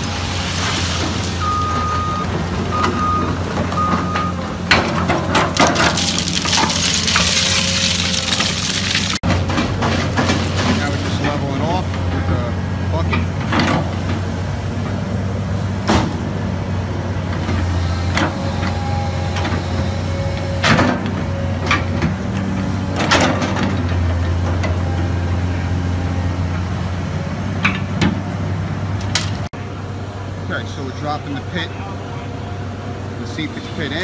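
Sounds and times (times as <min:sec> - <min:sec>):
backhoe engine running: 0:00.0 - 0:34.0
bucket clanking and scraping on stone: 0:04.7 - 0:11.2.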